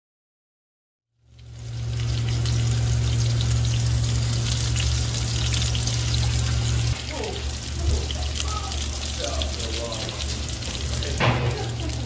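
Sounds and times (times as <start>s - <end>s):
food sizzling and crackling: 1.2s - 12.0s
gas oven humming and hissing: 1.2s - 12.0s.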